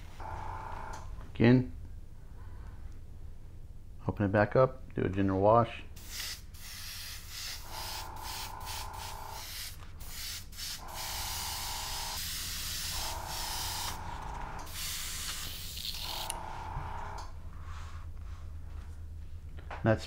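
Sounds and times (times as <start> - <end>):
airbrush spraying hiss: 6.0 - 14.0.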